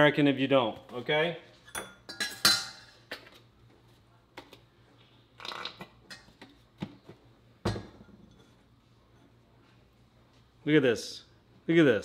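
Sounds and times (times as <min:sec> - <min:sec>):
kitchenware tapping and clinking: 0:01.7 - 0:03.3, 0:07.6 - 0:08.6.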